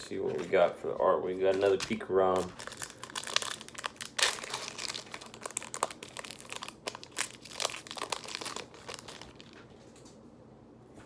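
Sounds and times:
plastic wrapper crinkling and tearing: 1.4s - 9.8s.

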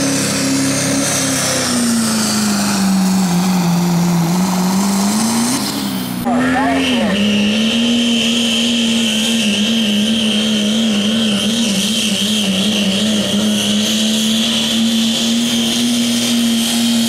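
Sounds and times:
diesel truck engine droning: 0.0s - 17.0s.

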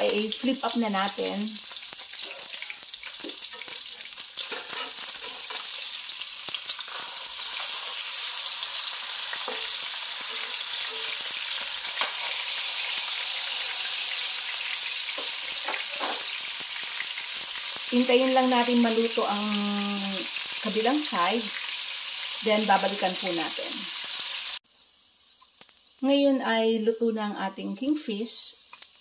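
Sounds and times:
fish sizzling in hot oil: 0.0s - 26.4s, 28.1s - 29.0s.

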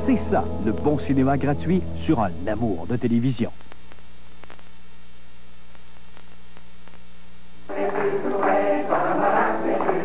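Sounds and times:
folk music: 0.0s - 2.7s
electrical hum with tape hiss: 0.0s - 10.0s.

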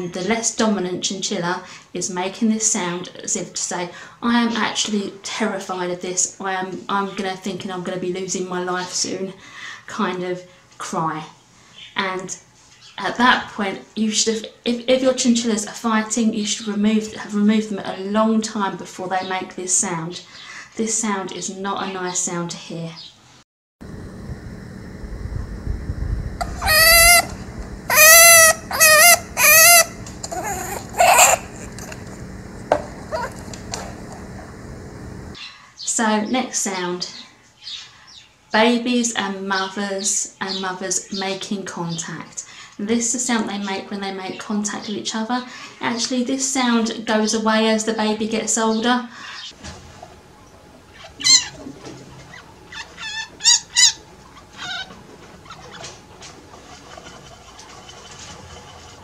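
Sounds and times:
chinchilla screaming: 26.4s - 31.9s, 33.1s - 33.4s, 51.0s - 51.6s, 52.3s - 55.8s.

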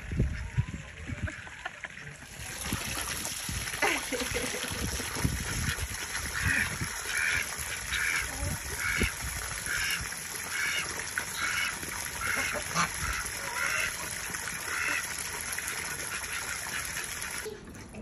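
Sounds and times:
garden hose spraying water: 0.0s - 17.5s
waterfowl calling: 5.5s - 15.2s.

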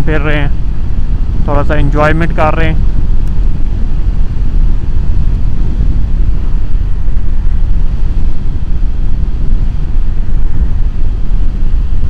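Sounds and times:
motorcycle wind and riding noise: 0.0s - 12.0s.

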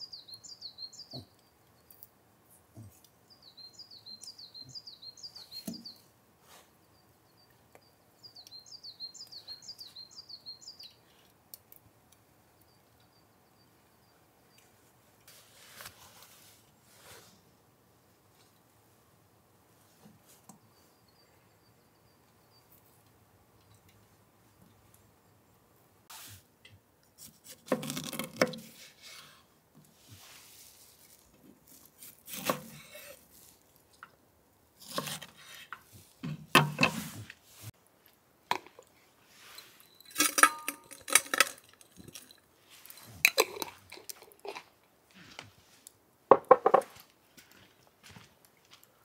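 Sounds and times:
metal cookware clattering: 40.1s - 42.3s.

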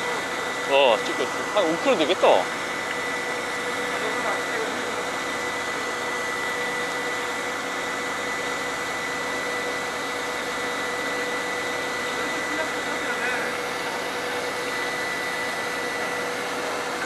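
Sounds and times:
thin whine: 0.0s - 7.3s
boat engine drone: 0.0s - 7.8s.

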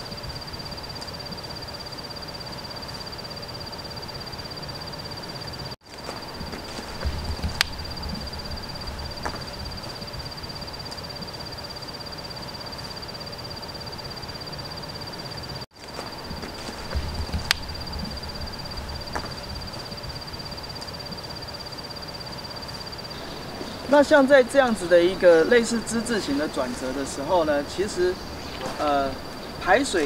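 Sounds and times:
dull thuds: 6.0s - 10.4s, 15.9s - 20.3s.

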